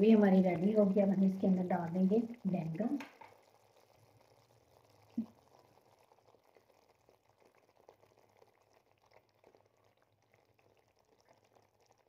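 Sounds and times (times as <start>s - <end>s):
thick gravy bubbling in a pan: 0.0s - 12.0s
small pops: 2.3s - 11.6s.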